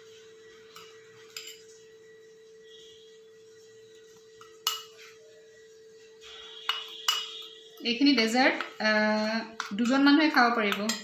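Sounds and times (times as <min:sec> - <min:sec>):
spoon clinking against glass: 0:00.7 - 0:01.7, 0:04.4 - 0:05.0, 0:06.5 - 0:07.8, 0:09.6 - 0:11.0.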